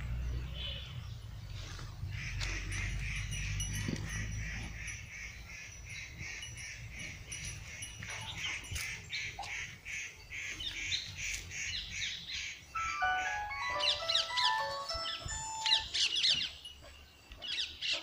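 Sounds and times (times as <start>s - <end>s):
sharp bird calls: 4.4s - 16.6s.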